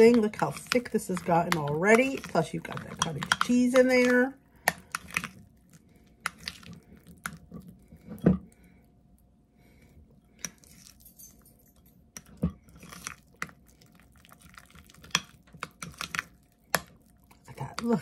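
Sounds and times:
spoon stirring thick mixture: 0:00.0 - 0:11.1, 0:11.7 - 0:18.0.

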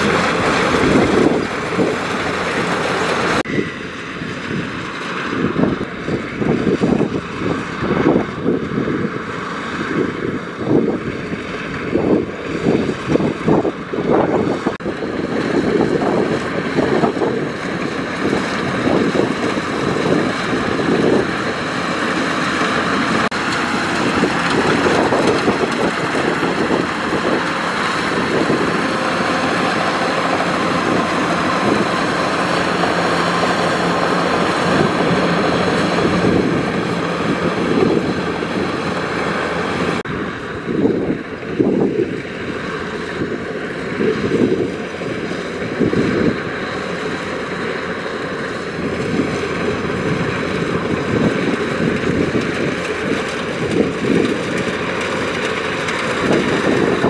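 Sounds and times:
combine harvester engine running: 0:00.0 - 0:57.0
wind buffeting microphone: 0:00.0 - 0:57.0.

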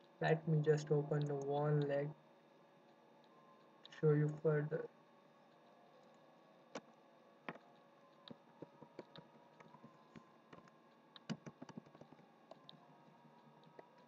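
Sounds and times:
computer keys clicking: 0:07.5 - 0:14.0.

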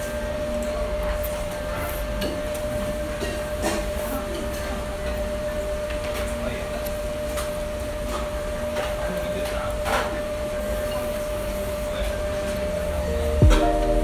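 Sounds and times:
steady machine hum: 0:12.3 - 0:14.0.

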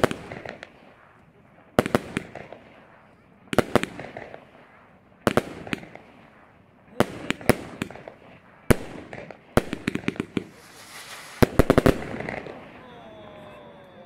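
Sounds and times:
firework bangs echoing: 0:00.0 - 0:13.4.

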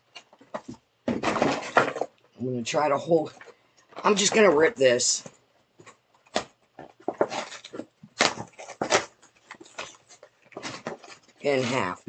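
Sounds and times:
cardboard being torn: 0:06.3 - 0:11.8.

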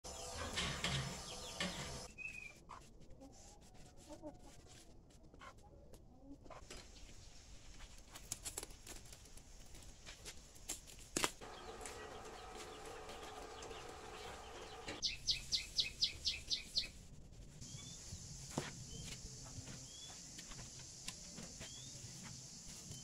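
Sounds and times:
bird chirping: 0:00.1 - 0:02.6, 0:11.4 - 0:17.0.

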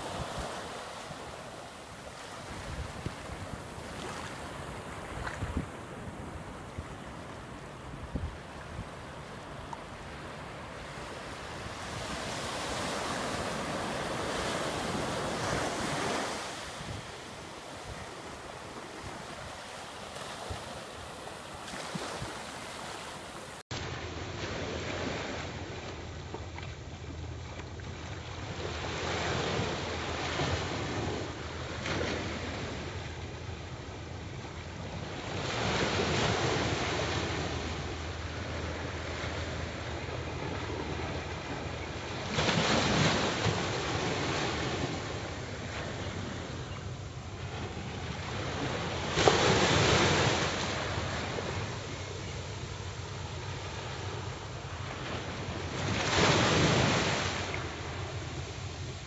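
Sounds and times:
wind on microphone: 0:00.0 - 0:23.6
small waves lapping on shore: 0:00.0 - 0:26.0, 0:34.9 - 0:59.0.

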